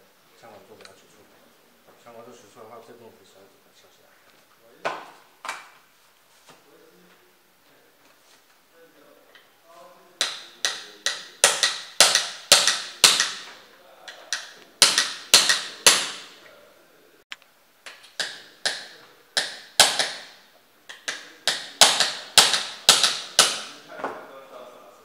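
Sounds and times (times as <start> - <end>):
hammer tapping metal punch: 10.2 - 13.5, 14.3 - 16.3, 18.2 - 23.7.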